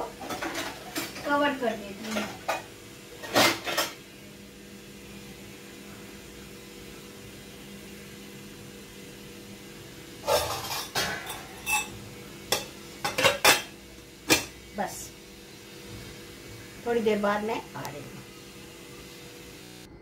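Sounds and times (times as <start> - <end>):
steel lid clattering on metal: 10.2 - 11.9.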